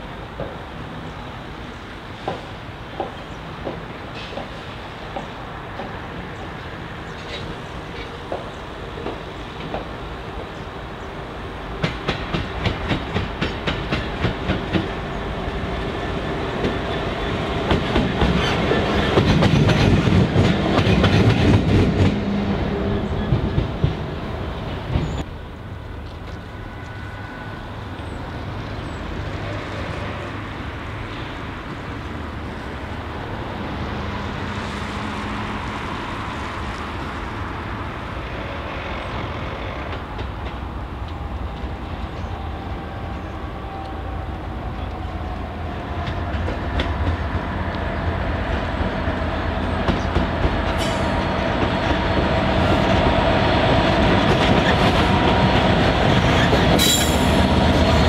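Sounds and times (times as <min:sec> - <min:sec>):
train wheels clicking: 0:11.8 - 0:15.0, 0:16.6 - 0:22.4, 0:45.9 - 0:48.9, 0:49.5 - 0:53.1.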